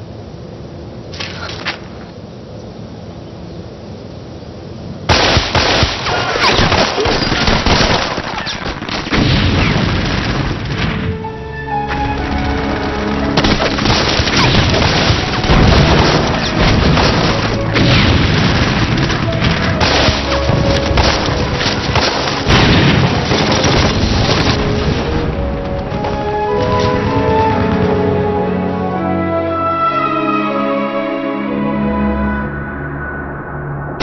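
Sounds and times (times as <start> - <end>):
gunfire: 5.1 - 10.9, 13.4 - 24.6
explosions: 5.1 - 11.2, 12.4 - 28.0.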